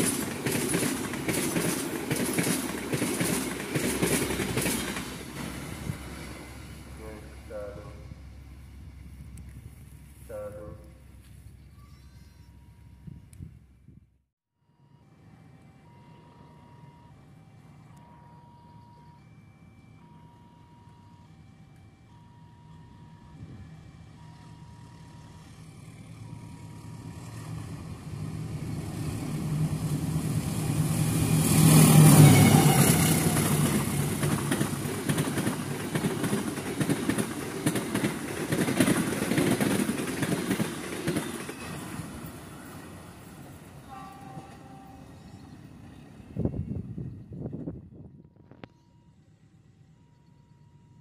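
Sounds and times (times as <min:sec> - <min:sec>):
train wheels clattering over rail joints: 0:00.0 - 0:05.6, 0:32.8 - 0:41.9
locomotive engine droning: 0:00.0 - 0:13.8, 0:14.6 - 0:51.0.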